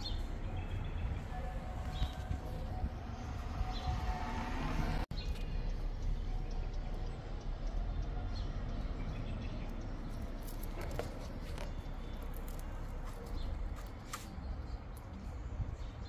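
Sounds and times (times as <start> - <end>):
twigs clicking and rustling: 10.0 - 15.1.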